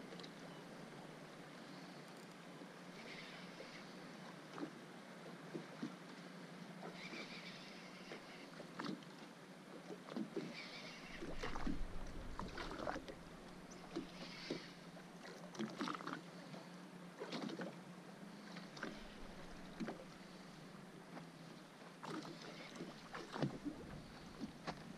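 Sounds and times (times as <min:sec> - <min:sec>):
water slapping boat hull: 0:04.3 - 0:07.1, 0:08.0 - 0:17.8, 0:18.4 - 0:24.9
steady low hum: 0:11.0 - 0:15.6, 0:16.2 - 0:24.9
low rumble: 0:11.2 - 0:14.2.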